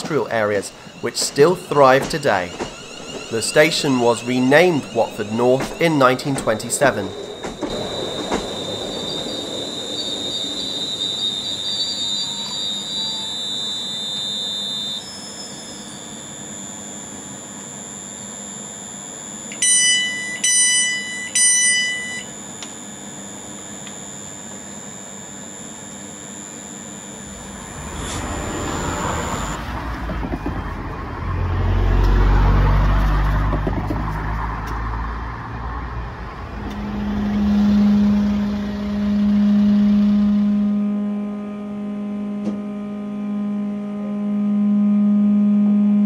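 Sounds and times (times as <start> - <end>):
short electronic beeps: 0.0 - 16.9, 19.5 - 22.3
train high-pitched whine: 0.0 - 46.0
low rumble: 27.2 - 43.8.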